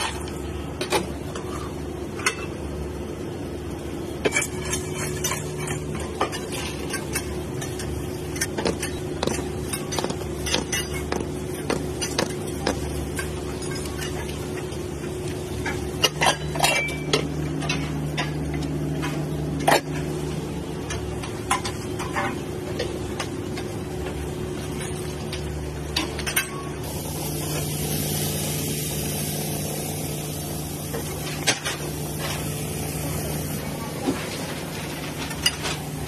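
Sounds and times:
steady mechanical hum: 0.0 - 36.0
metal tray and utensils clinking: 4.2 - 20.1, 30.9 - 36.0
bacon sizzling on a griddle: 26.8 - 33.6.

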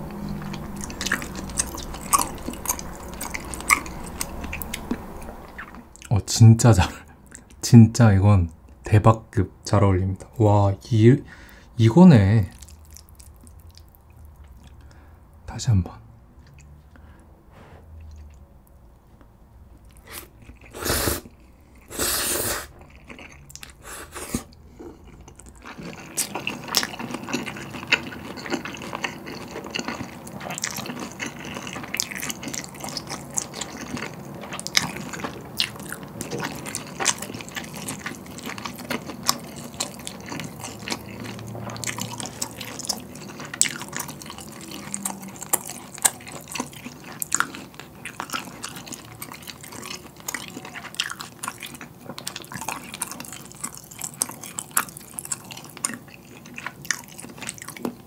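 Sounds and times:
wet chewing with mouth clicks: 0.0 - 6.2, 12.4 - 15.0, 17.9 - 21.9, 22.6 - 58.0
loud slurping of noodles: 20.0 - 22.7.

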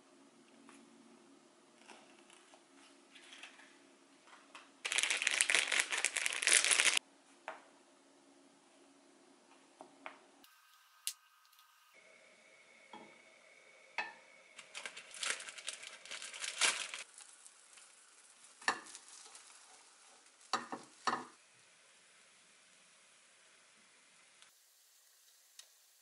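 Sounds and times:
bread crackling in pan: 4.8 - 7.0, 14.1 - 21.4
butter sizzling in a frying pan: 16.6 - 26.0.

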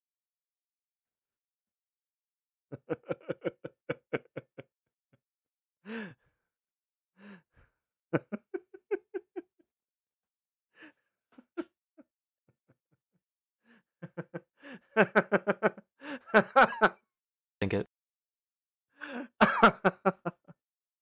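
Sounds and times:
man chuckling: 2.8 - 4.4, 19.1 - 20.4.

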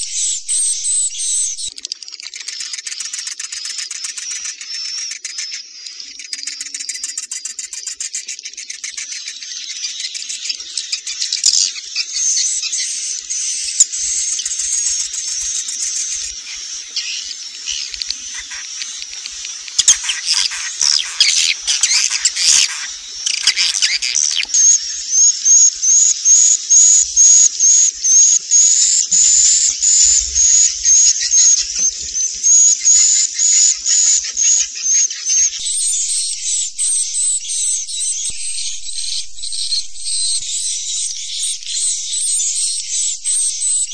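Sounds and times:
swiftlets twittering: 14.3 - 34.5, 35.3 - 43.9
short repeating chirp: 35.6 - 43.9.

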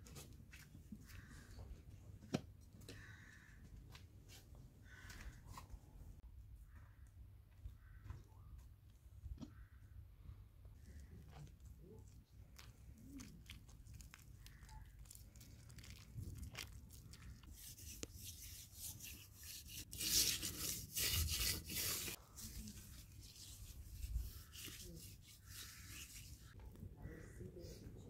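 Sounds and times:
hands scraping gritty soil: 12.6 - 26.6.

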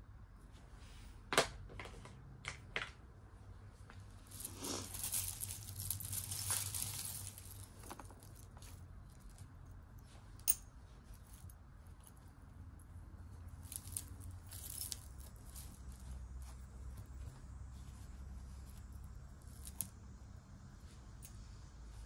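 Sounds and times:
jewelry clicking and jingling: 4.2 - 20.0.

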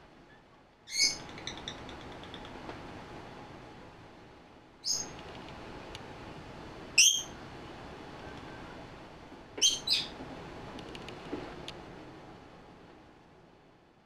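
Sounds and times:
parrot shrill calls: 0.9 - 1.8, 4.8 - 5.1, 7.0 - 7.3, 9.6 - 10.1.

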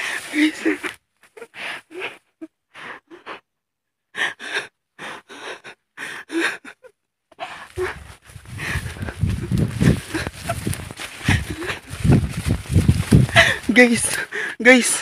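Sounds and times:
man breathing in gasps: 7.4 - 11.8.

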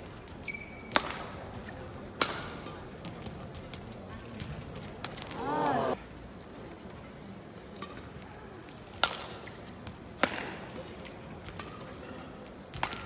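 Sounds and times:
racket hitting shuttlecock: 0.8 - 1.4, 2.2 - 3.2, 9.0 - 11.9, 12.7 - 13.0.

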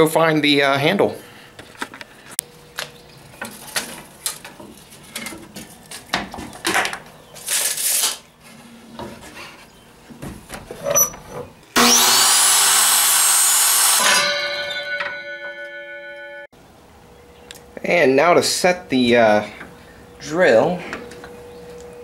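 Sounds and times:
tape measure and dowel handling: 7.4 - 8.3
chop saw cutting wood: 11.8 - 15.3
saw blade spinning down hum: 11.8 - 16.4.

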